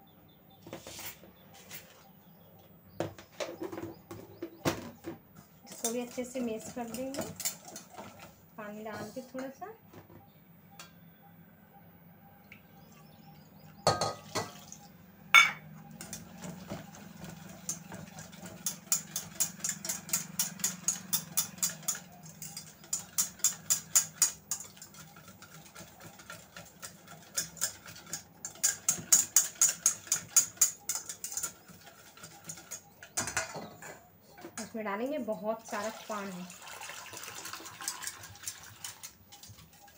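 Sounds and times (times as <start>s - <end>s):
whisk beating in metal bowl: 16.7s - 33.6s.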